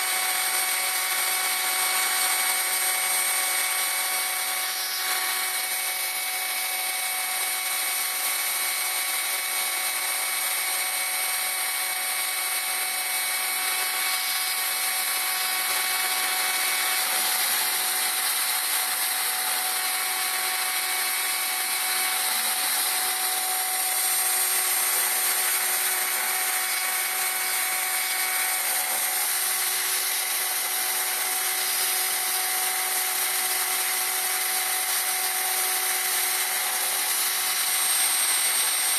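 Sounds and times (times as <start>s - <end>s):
router spindle high whine: 0.0s - 38.9s.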